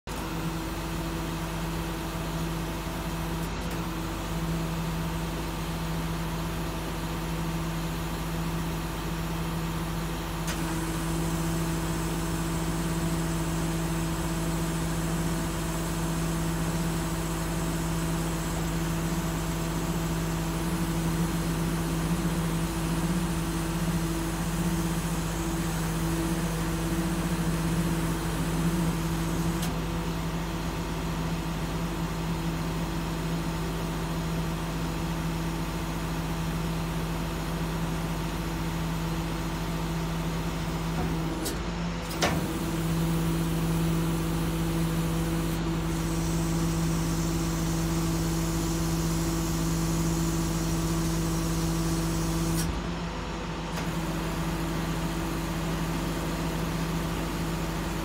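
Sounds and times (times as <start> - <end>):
hydraulic crane system: 9.9 - 29.9.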